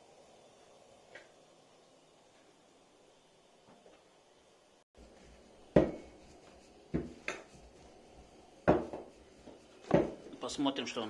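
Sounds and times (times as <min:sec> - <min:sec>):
kitchenware knocking and clinking: 0:05.8 - 0:06.1, 0:08.7 - 0:09.0, 0:09.9 - 0:10.2.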